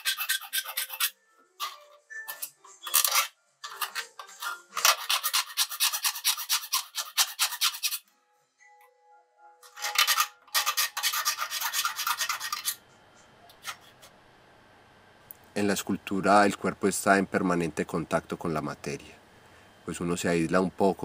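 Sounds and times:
hand tool scraping metal: 0:00.0 - 0:08.0, 0:09.6 - 0:12.8.

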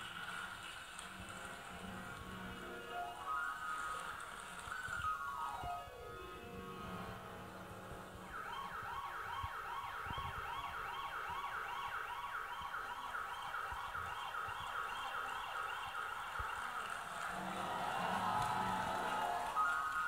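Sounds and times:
siren wailing in yelps: 0:08.3 - 0:20.0.

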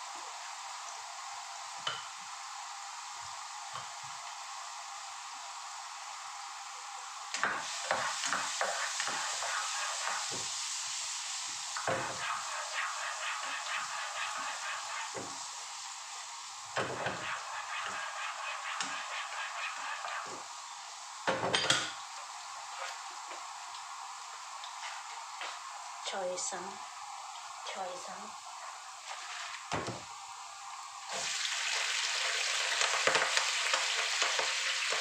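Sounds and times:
oil sizzling in a frying pan: 0:00.0 - 0:35.0
spatula scraping and tapping pan: 0:16.8 - 0:20.4.

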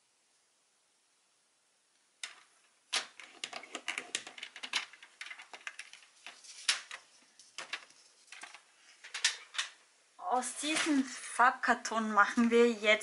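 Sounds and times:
cardstock rustling: 0:02.2 - 0:09.8.

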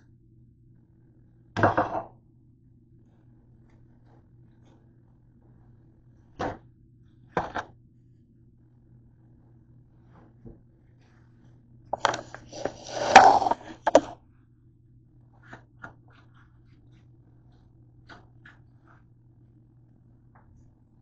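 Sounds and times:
camera knocking and scraping: 0:12.0 - 0:14.2.

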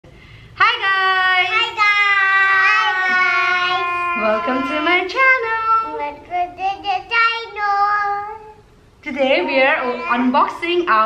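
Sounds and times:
young children singing: 0:01.6 - 0:08.6.

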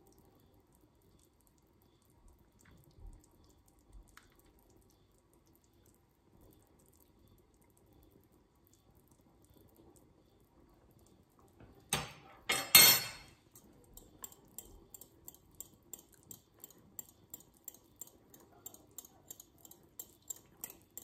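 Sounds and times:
fork whisking against bowl: 0:13.5 - 0:21.0.

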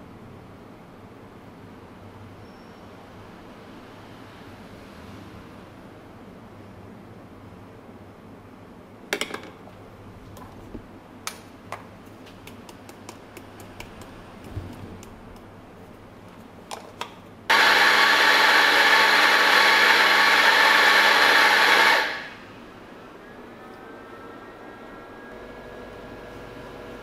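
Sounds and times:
coffee grinder motor whine: 0:17.5 - 0:22.4.

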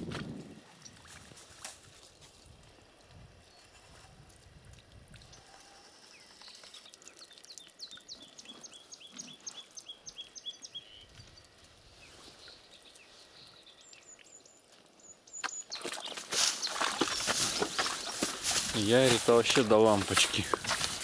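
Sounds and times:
bird calls: 0:05.2 - 0:21.0.

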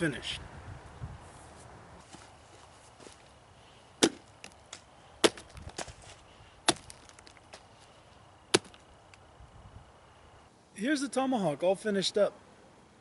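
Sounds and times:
tomahawk chopping into pumpkin: 0:04.0 - 0:04.3, 0:05.2 - 0:05.9, 0:06.6 - 0:07.1, 0:08.5 - 0:08.8.

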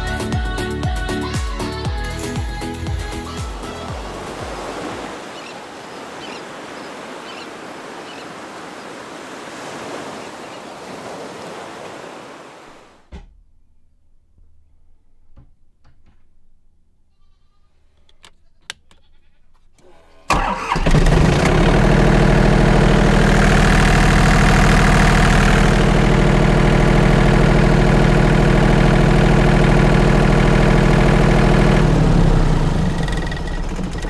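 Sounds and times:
diesel generator running: 0:20.3 - 0:34.0.

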